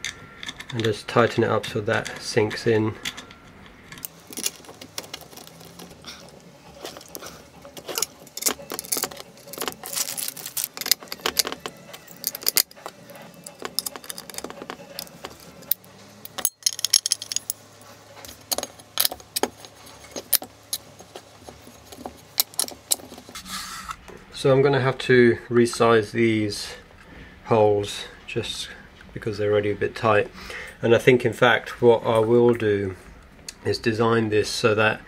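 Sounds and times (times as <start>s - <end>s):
hand tools clicking and clinking: 0.0s - 23.5s
small parts set on workbench: 3.0s - 17.7s.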